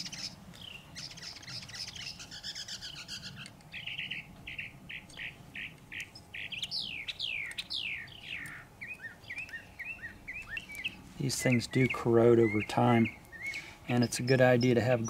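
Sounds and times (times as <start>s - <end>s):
songbirds singing: 0.0s - 15.0s.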